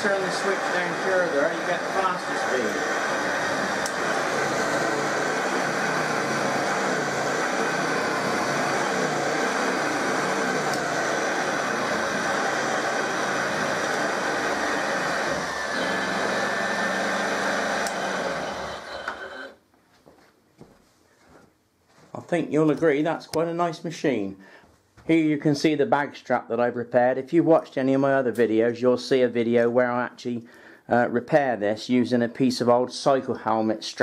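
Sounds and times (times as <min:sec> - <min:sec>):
vacuum cleaner running: 0:00.0 - 0:19.6.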